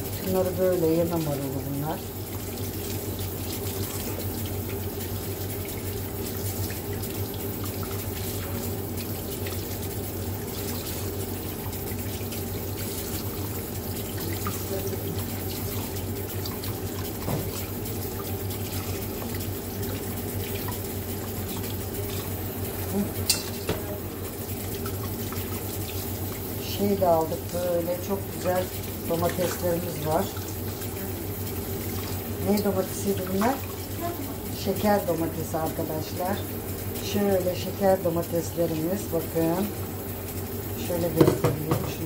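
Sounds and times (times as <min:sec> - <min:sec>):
tap running into metal sink: 0:14.0 - 0:18.3, 0:23.2 - 0:24.0, 0:41.1 - 0:42.0.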